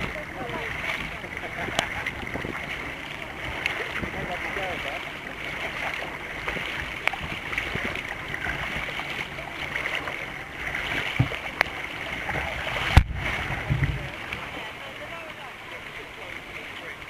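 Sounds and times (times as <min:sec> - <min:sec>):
water rushing against kayak: 0:00.0 - 0:17.0
knocks against hull: 0:10.8 - 0:14.5.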